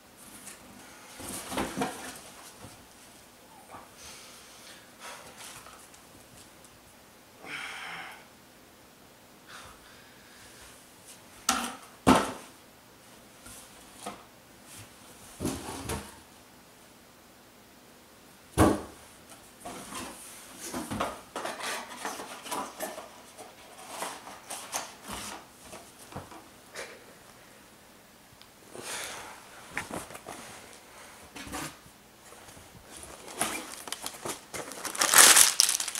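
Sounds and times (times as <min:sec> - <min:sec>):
knocks and clunks of boxes: 0:15.4 - 0:16.2
packaging rustling: 0:32.9 - 0:35.9.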